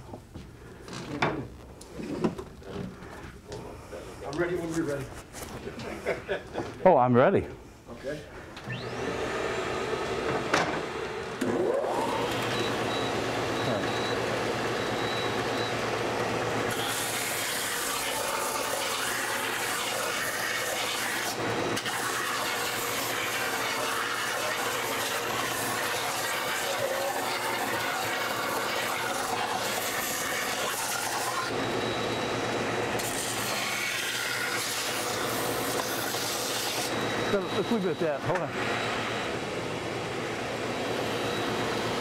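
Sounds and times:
belt sander motor hum: 8.6 - 42.0.

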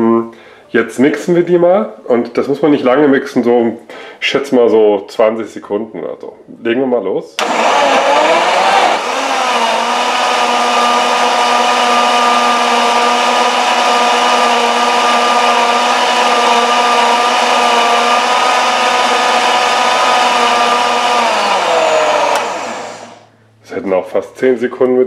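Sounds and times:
blender motor whining: 7.4 - 23.3.

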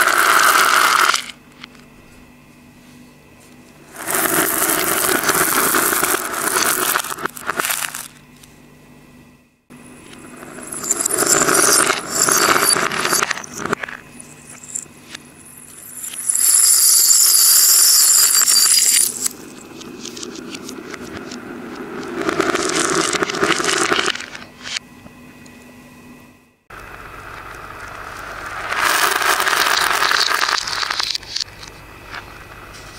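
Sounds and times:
jingle bells and beads rattling: 10.3 - 14.8, 15.4 - 19.6.

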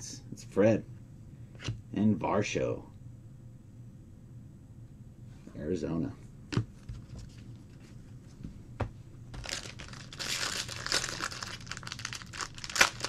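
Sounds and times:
foil wrapper crinkling: 9.4 - 13.0.

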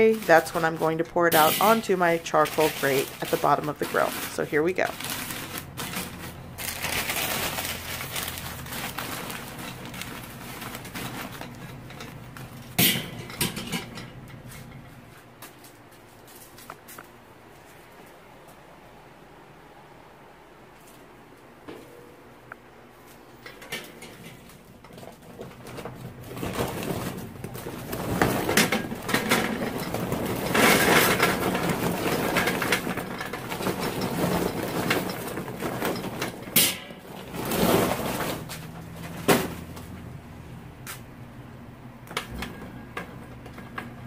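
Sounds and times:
charcoal clattering into metal chimney: 0.0 - 15.0, 23.3 - 40.0.

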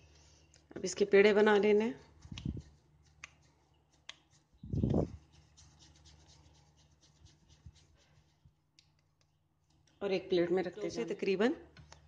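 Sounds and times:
hands rolling dough: 0.5 - 9.8.

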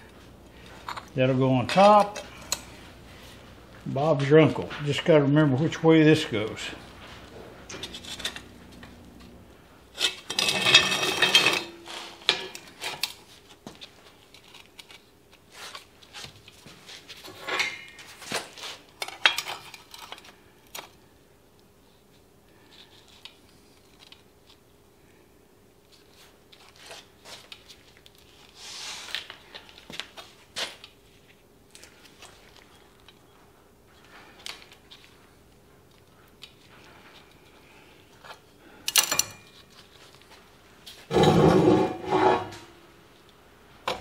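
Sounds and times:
faint steady hum: 0.0 - 44.0
steel parts clattering on table: 10.0 - 13.1.

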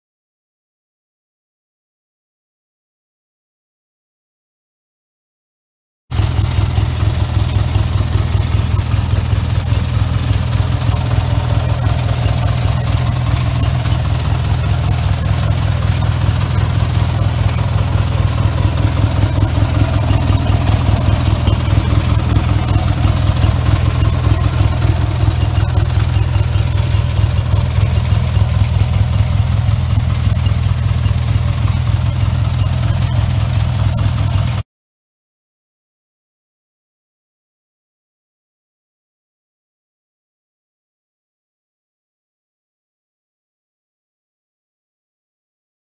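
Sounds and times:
lawn tractor engine idling: 6.1 - 34.6.

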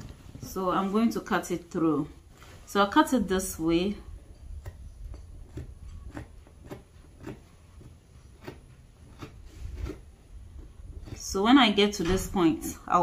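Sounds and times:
scissors snipping fabric: 4.5 - 10.0.

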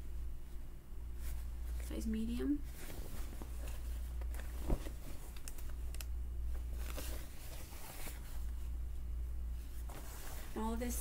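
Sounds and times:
fabric rustling: 0.0 - 11.0
steady low hum: 0.0 - 11.0.

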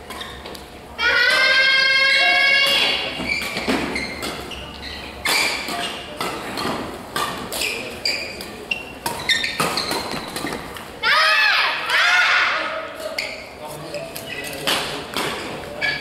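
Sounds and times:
shoe squeaks on court floor: 0.2 - 0.5, 3.2 - 6.1, 7.6 - 10.7, 13.0 - 14.7, 15.8 - 16.0
rackets hitting shuttlecock: 5.2 - 10.8.

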